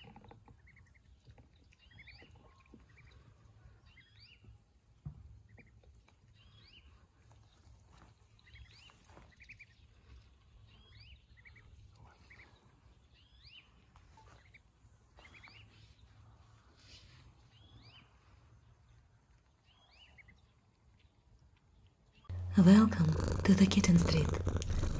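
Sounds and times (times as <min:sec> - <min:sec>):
faint birds chirping: 0:00.0 - 0:24.9
low steady rumble: 0:22.3 - 0:24.9.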